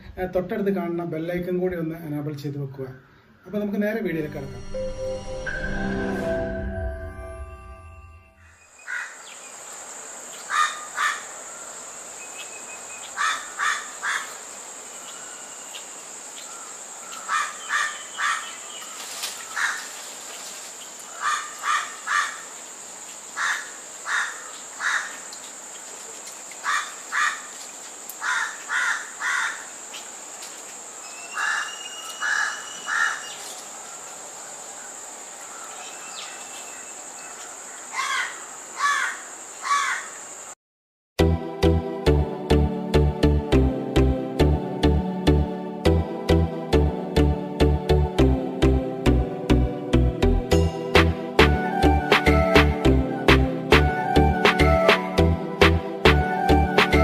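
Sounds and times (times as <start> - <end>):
insect drone: 8.6 - 40.6
harsh cawing calls: 8.9 - 9.2, 10.5 - 11.3, 13.2 - 14.4, 16.6 - 18.5, 21.1 - 22.5, 23.4 - 25.2, 26.6 - 27.5, 28.2 - 29.7, 31.3 - 33.3, 38.0 - 40.2
whistled bird notes: 31.0 - 33.4.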